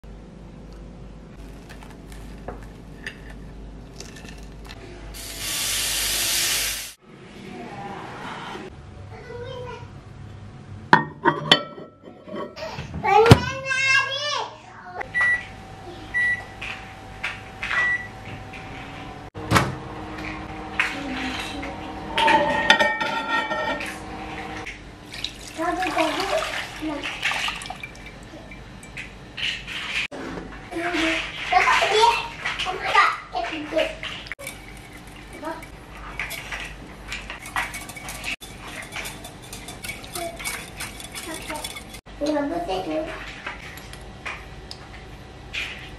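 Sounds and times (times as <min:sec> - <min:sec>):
microwave ringing tone: 0:16.1 - 0:16.5, 0:17.8 - 0:18.2
milk pouring into glass bowl: 0:25.1 - 0:26.6.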